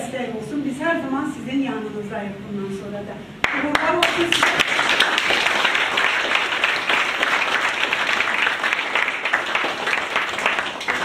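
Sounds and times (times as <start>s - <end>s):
crowd applauding: 3.4s - 11.0s.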